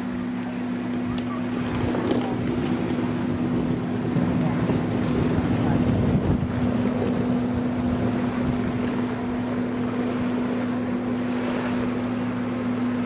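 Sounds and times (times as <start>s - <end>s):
ferry engines humming: 0.0s - 13.0s
wind noise on microphone: 3.4s - 9.2s.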